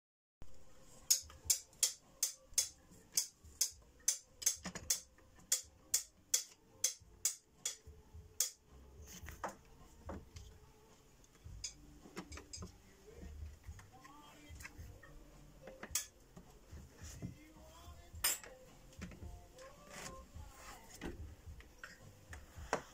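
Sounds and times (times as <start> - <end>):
glass pieces clicking and tapping: 1.1 - 7.8, 11.5 - 12.7, 15.8 - 16.1.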